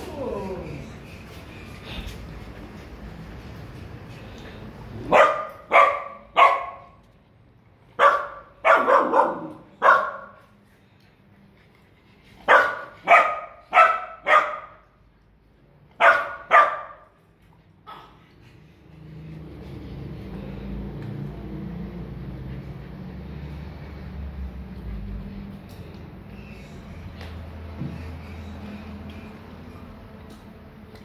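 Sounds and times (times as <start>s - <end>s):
puppy barking: 5.0s - 7.0s, 8.0s - 10.4s, 12.4s - 14.9s, 16.0s - 17.2s.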